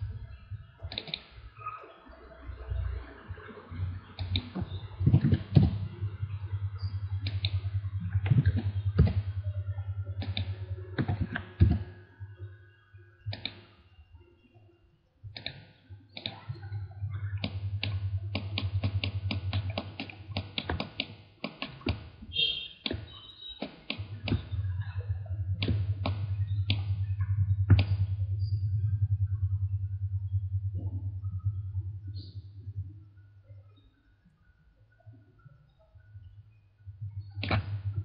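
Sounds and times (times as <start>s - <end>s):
steady low hum: 0.0s - 22.8s, 23.8s - 38.0s
mouse clicks: 4.2s - 5.8s, 6.8s - 7.6s, 10.2s - 11.8s, 13.3s - 13.6s.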